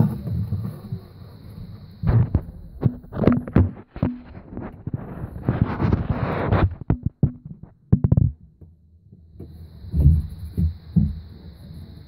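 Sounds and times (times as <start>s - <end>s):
faint steady high hiss: 0.0s - 12.0s
low thumps: 1.9s - 8.4s
phone microphone handling rubbing: 2.0s - 8.4s.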